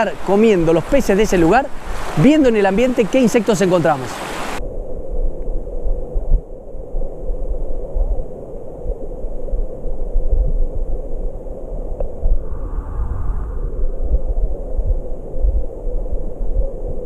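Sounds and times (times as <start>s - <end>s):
underwater stream rumble: 0.0s - 17.0s.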